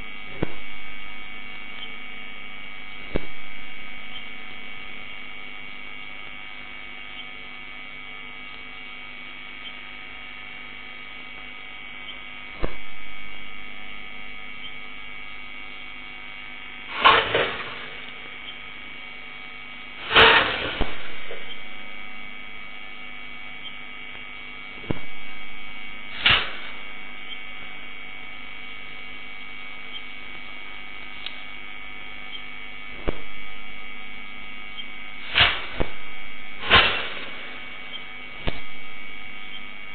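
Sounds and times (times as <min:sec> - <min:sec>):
electrical hum: 0:00.0 - 0:39.9
sharp knocks: 0:00.3 - 0:00.8.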